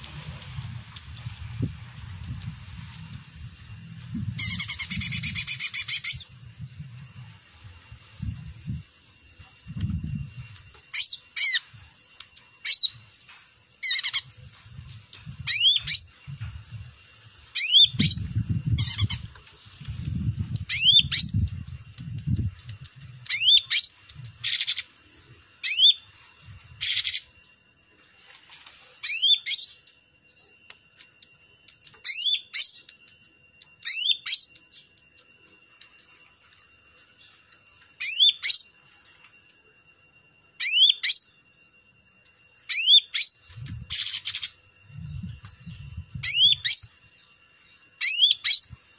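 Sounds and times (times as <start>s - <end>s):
bird singing whistled phrases: 4.4s - 6.3s, 17.6s - 19.2s, 20.7s - 21.5s, 23.2s - 24.9s, 25.6s - 26.0s, 32.0s - 33.0s, 33.8s - 34.9s, 38.0s - 38.8s, 40.6s - 41.4s, 42.7s - 47.2s, 48.0s - 48.8s.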